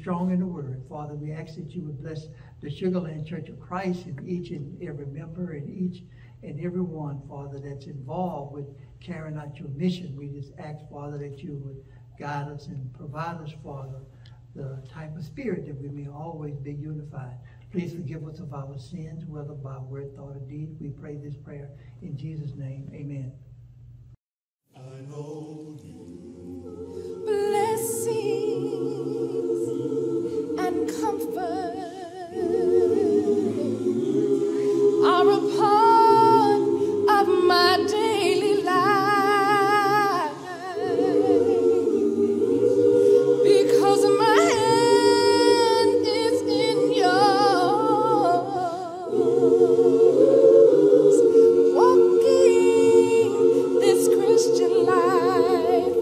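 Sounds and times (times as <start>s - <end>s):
choir singing a hymn: 24.8s - 56.0s.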